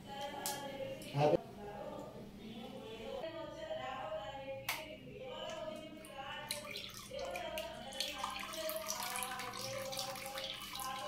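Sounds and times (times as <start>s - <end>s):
background song with singing: 0.0s - 11.0s
aquarium water trickling and splashing: 6.0s - 11.0s.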